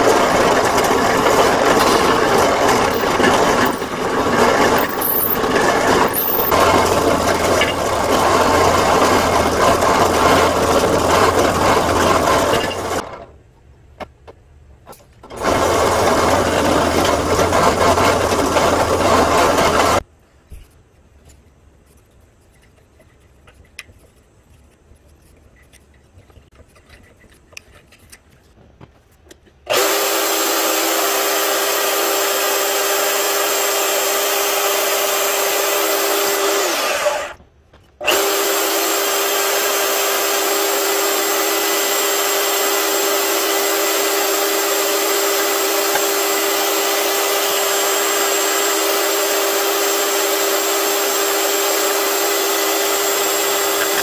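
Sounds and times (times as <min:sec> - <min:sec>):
band saw whining: 0:00.0 - 0:13.0, 0:15.3 - 0:20.0, 0:29.7 - 0:37.4, 0:38.0 - 0:54.0
hand tool scraping: 0:00.0 - 0:13.0, 0:14.9 - 0:29.6, 0:41.6 - 0:54.0.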